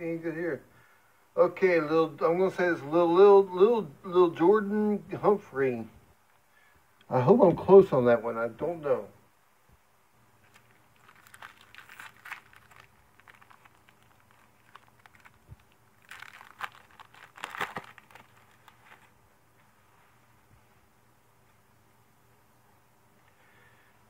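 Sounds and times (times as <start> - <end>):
wrapper rustling and crinkling: 10.4 - 19.2.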